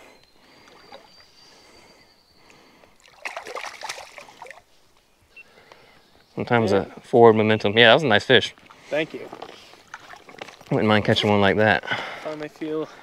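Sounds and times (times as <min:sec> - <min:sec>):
splashing in water: 0:03.0 - 0:04.6, 0:09.8 - 0:10.8
water trickling over rocks: 0:08.6 - 0:11.5.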